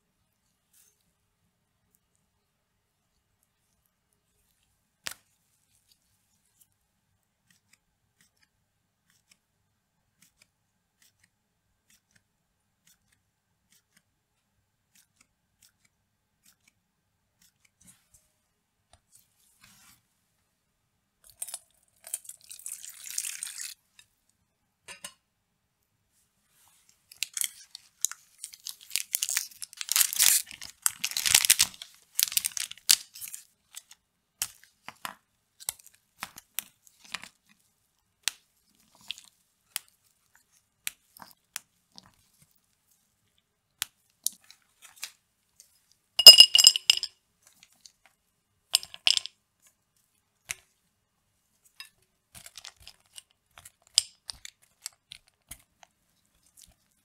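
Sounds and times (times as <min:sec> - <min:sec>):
wrapper crinkling and tearing: 0:22.3 - 0:23.8, 0:27.1 - 0:33.8
chocolate snapping on foil: 0:27.2 - 0:34.6
glass bowl clinking: 0:46.2 - 0:47.1.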